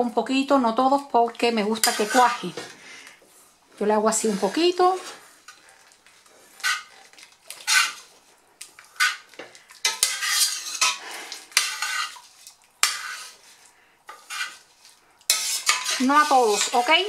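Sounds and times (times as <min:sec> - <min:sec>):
metal spoon scraping a pot: 0:01.7 - 0:02.8, 0:04.1 - 0:08.1, 0:08.8 - 0:17.0.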